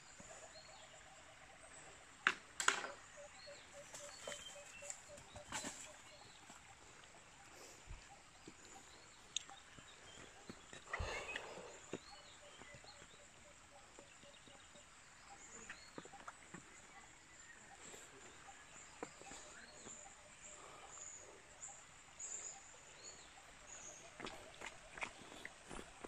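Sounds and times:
bird calls: 0.0 - 26.0.

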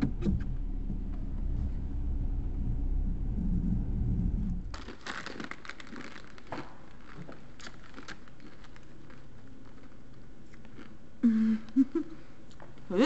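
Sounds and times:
chip bag crinkling: 4.7 - 11.0.

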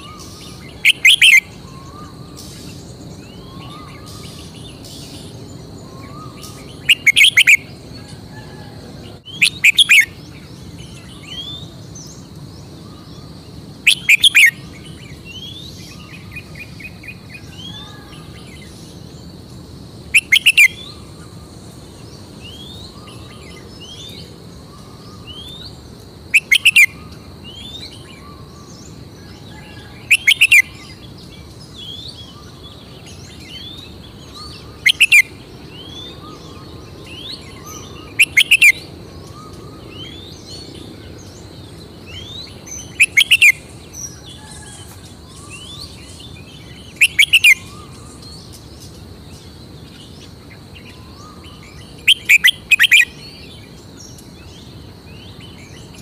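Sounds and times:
bird singing quick phrases: 5.9 - 7.7, 9.2 - 10.2, 20.1 - 21.0, 46.9 - 48.6.

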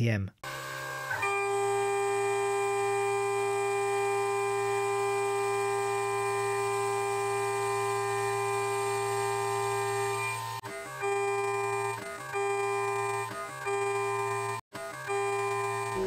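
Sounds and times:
spindle milling high whine: 0.5 - 13.3.

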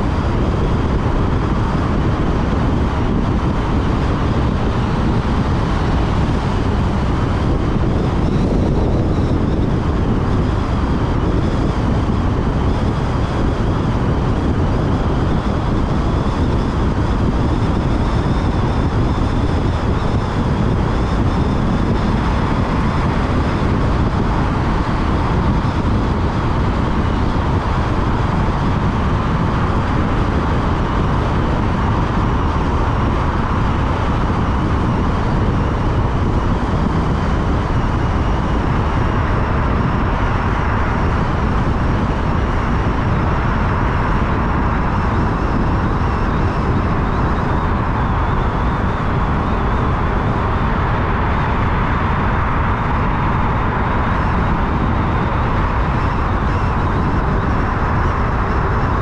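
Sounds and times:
car road and tyre noise: 0.0 - 59.0.

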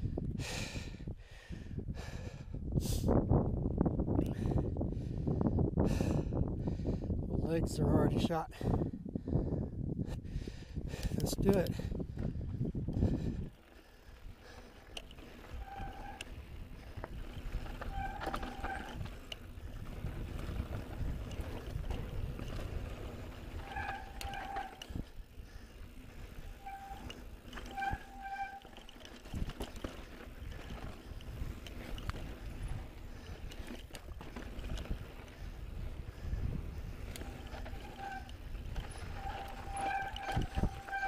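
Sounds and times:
wind on microphone: 0.0 - 41.0
tyres rumbling on rocky trail: 10.9 - 41.0
disc brakes squealing: 15.0 - 41.0.

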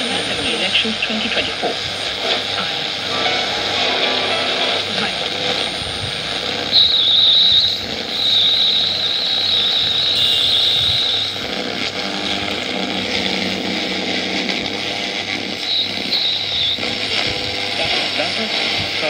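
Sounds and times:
radio static hiss: 0.0 - 19.0
thin high whistle: 6.7 - 11.4, 15.6 - 16.9.

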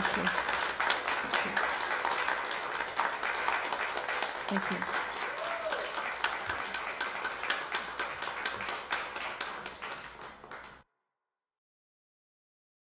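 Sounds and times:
audience clapping: 0.0 - 10.8.

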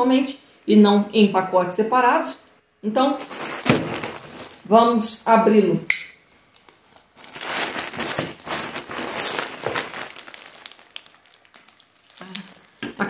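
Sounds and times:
plastic mailer bag crinkling: 3.0 - 4.7, 6.8 - 13.0.

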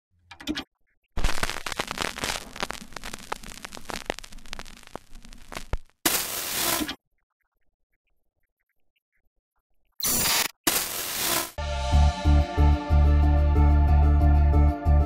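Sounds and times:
television static hiss: 1.2 - 6.8
old film crackle: 1.2 - 6.9.

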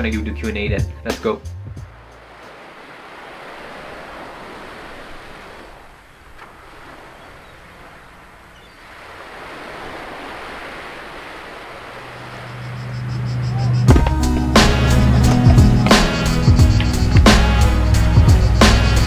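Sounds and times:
music: 0.0 - 2.2, 13.1 - 19.0
waves lapping on pebbles: 2.0 - 12.6.

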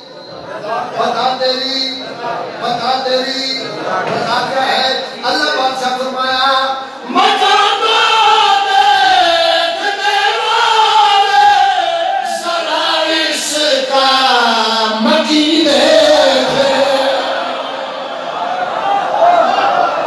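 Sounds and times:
person chanting devotional recitation: 6.6 - 17.6.

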